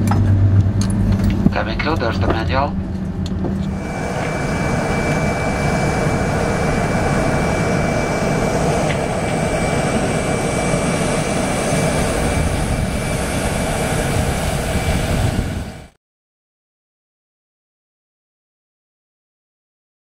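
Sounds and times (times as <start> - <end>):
jet airliner roar with whine: 0.0 - 16.0.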